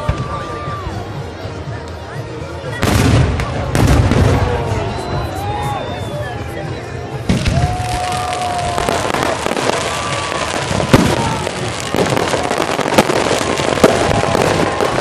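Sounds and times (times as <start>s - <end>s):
fireworks crackling: 0.0s - 6.2s, 7.0s - 15.0s
fireworks sharp bangs: 7.2s - 15.0s.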